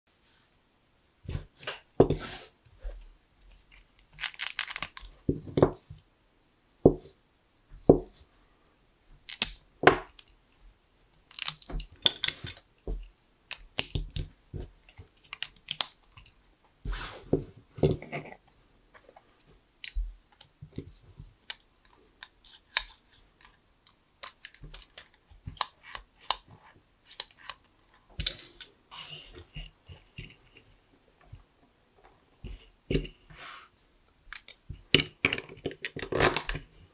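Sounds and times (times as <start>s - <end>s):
plastic bricks clicking: 3.7s - 5.7s, 9.3s - 10.3s, 11.3s - 12.7s, 21.4s - 28.7s, 34.3s - 36.7s.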